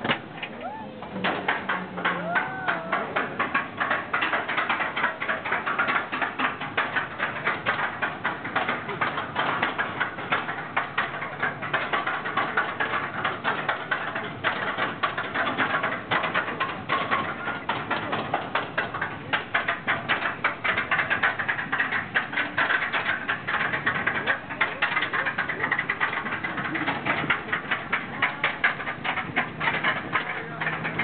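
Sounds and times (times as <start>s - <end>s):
ride car clattering and rattling: 0.0s - 31.0s.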